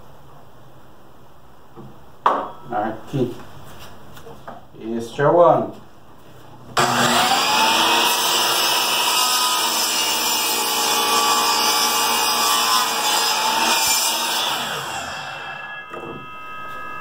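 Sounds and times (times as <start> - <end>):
miter saw cutting wood: 6.8 - 17.0.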